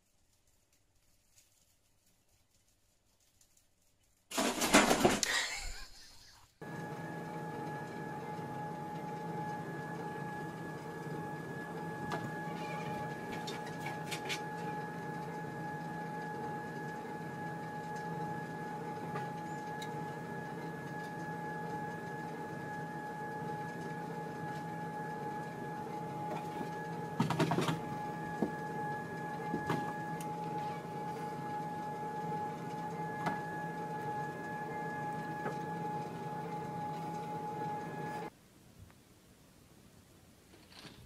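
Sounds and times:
treadmill motor whine: 6.6s - 38.3s.

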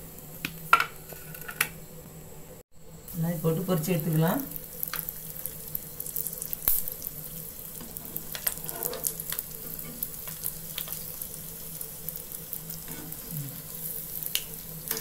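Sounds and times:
oil sizzling with crackling pops: 0.0s - 1.8s, 3.1s - 15.0s.

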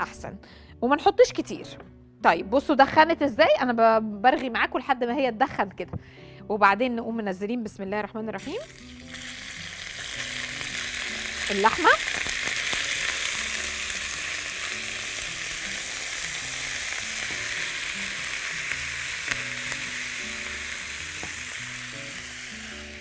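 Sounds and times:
meat sizzling in a wok: 8.4s - 23.0s.

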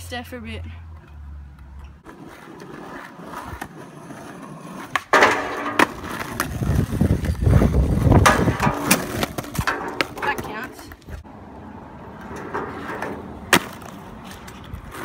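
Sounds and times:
skateboard wheels rolling on asphalt: 0.8s - 15.0s
skateboard grinding on metal bench: 2.0s - 10.8s, 12.2s - 15.0s
skateboard clack: 2.0s - 11.0s, 12.2s - 15.0s.

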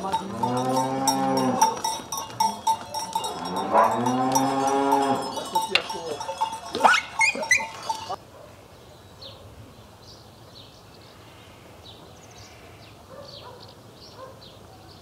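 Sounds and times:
cowbells clanking: 0.0s - 8.2s
cows mooing: 0.0s - 8.2s.

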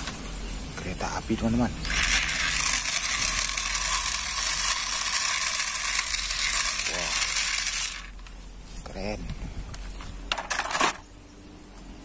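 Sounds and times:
toy locomotive hissing whir: 1.8s - 8.3s.

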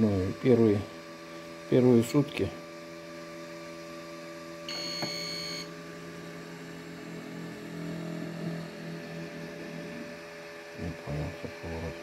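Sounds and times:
egg-turning motor humming: 0.0s - 12.0s
steady electrical hum: 0.0s - 12.0s.

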